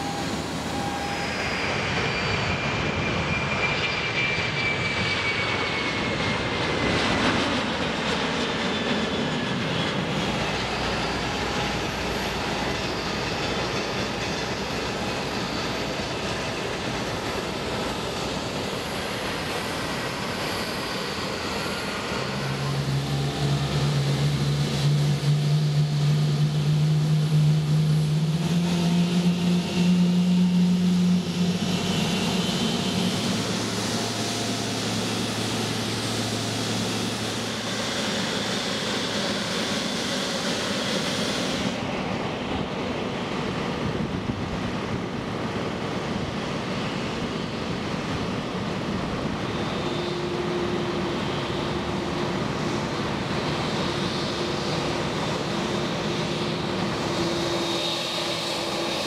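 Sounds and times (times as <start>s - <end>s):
high jet engine whine: 0.0s - 59.0s
jet engines roaring: 0.0s - 59.0s.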